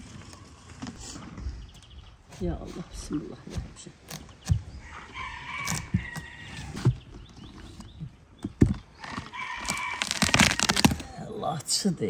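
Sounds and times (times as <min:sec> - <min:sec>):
rooster crowing: 0:04.8 - 0:06.8, 0:09.3 - 0:10.5
knife cutting through watermelon: 0:05.4 - 0:07.0, 0:09.4 - 0:11.1.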